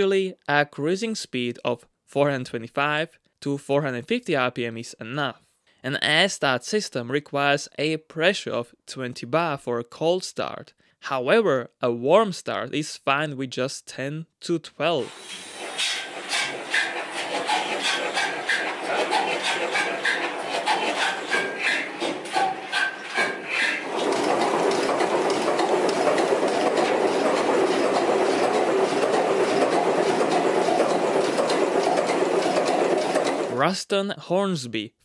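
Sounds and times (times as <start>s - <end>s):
diesel engine clattering: 15.6s - 33.6s.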